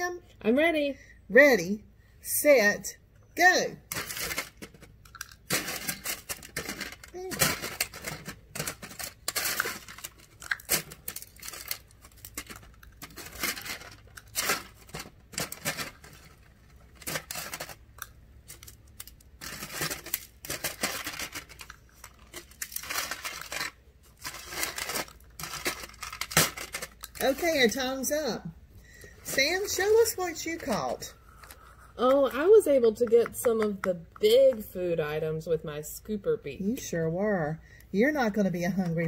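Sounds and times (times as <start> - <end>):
foil crinkling: 3.9 - 28.1.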